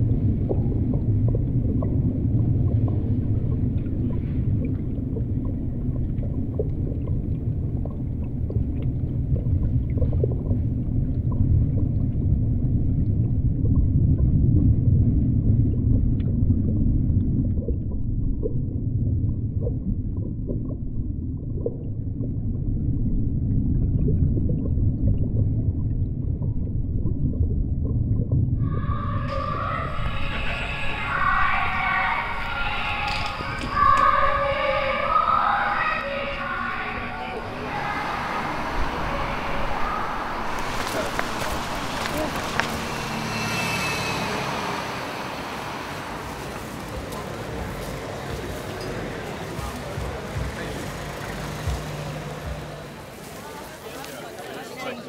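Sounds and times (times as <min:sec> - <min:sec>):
deep underwater rumble: 0:00.0 - 0:43.8
faint clicks and pops: 0:00.2 - 0:12.2.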